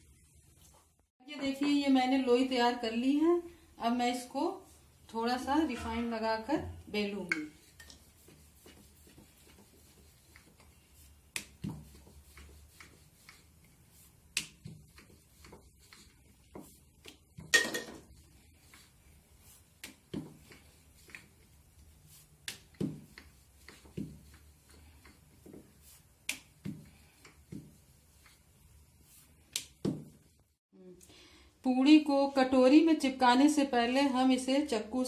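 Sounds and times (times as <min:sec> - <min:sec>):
rolling pin rolling dough: 0:05.1 - 0:30.5.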